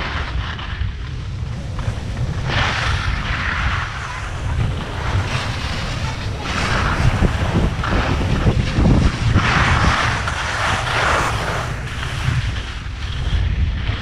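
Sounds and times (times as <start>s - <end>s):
skis sliding over snow: 0.0s - 14.0s
wind buffeting microphone: 0.0s - 14.0s.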